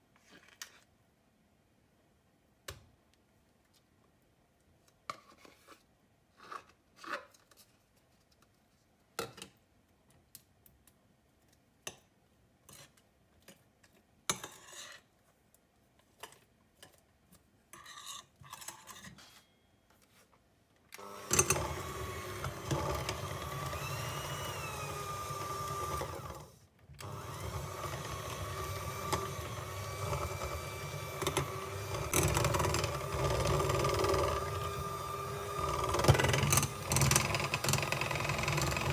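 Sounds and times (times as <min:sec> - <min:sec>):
electric hand mixer running: 0:21.0 - 0:38.9.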